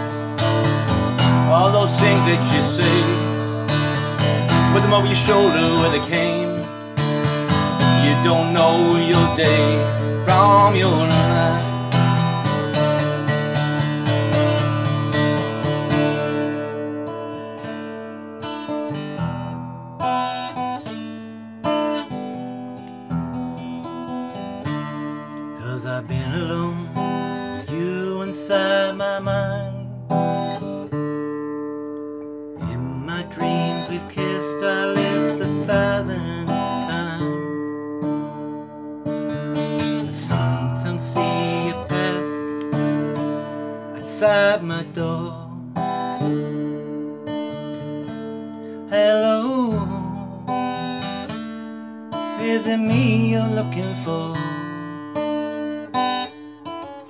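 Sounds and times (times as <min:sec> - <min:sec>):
acoustic guitar strumming: 0:00.0 - 0:57.0
man singing: 0:01.1 - 0:12.9, 0:25.6 - 0:30.3, 0:32.6 - 0:37.8, 0:39.8 - 0:43.0, 0:43.8 - 0:46.0, 0:48.8 - 0:51.1, 0:52.3 - 0:54.8.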